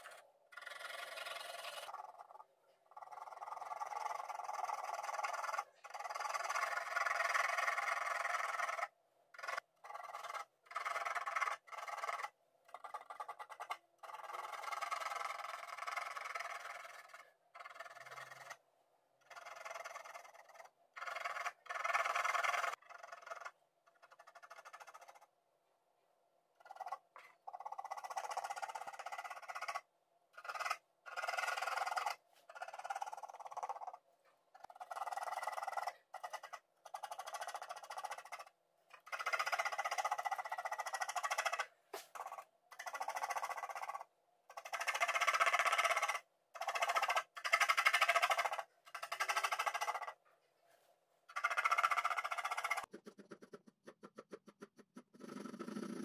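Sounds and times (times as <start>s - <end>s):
pencil hatching on paper: 0.0s - 18.6s, 26.6s - 50.2s.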